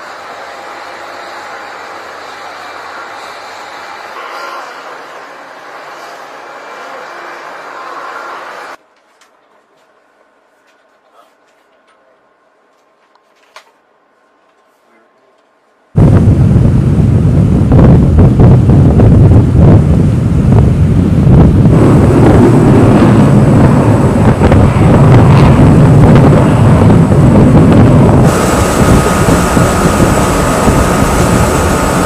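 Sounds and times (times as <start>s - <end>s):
faint steady whine: 0.0s - 32.0s
wind buffeting microphone: 16.0s - 32.0s.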